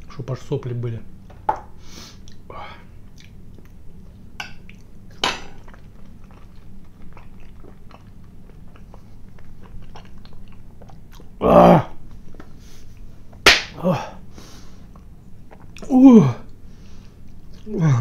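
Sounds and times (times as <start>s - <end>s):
person chewing food: 2.2s - 11.4s, 14.8s - 17.7s.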